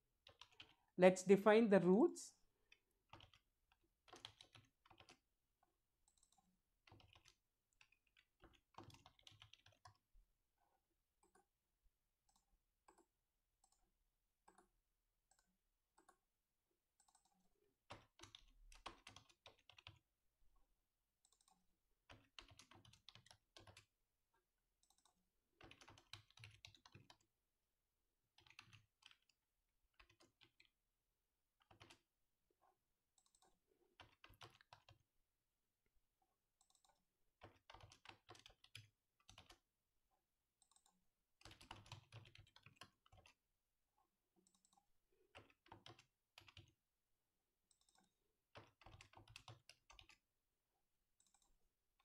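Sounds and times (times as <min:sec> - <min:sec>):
typing on computer keyboard: 0:00.2 - 0:00.9, 0:02.6 - 0:11.6, 0:12.2 - 0:20.1, 0:21.2 - 0:24.0, 0:24.7 - 0:27.4, 0:28.3 - 0:30.8, 0:31.5 - 0:32.1, 0:33.1 - 0:35.1, 0:36.5 - 0:39.7, 0:40.5 - 0:43.5, 0:44.4 - 0:46.8, 0:47.6 - 0:50.4, 0:51.1 - 0:52.0.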